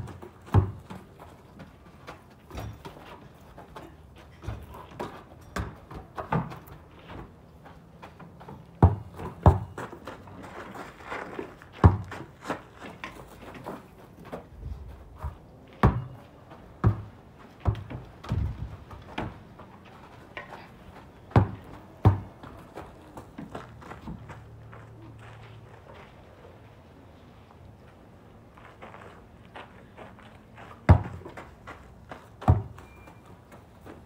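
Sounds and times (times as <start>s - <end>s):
basketball bouncing on hard ground: 0.0s - 10.3s, 11.7s - 13.7s, 15.2s - 19.7s, 21.2s - 24.3s, 30.8s - 33.2s.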